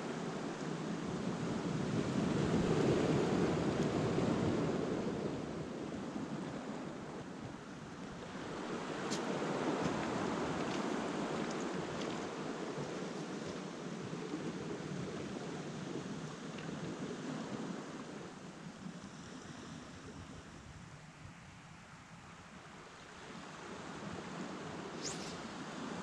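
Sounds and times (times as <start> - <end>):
small waves washing onto pebbles: 8.3 - 18.0.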